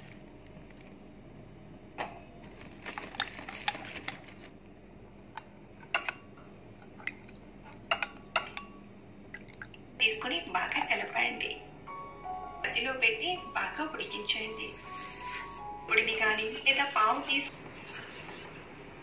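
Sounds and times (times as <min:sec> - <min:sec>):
spoon clinking glass bowl: 0:07.2 - 0:08.8.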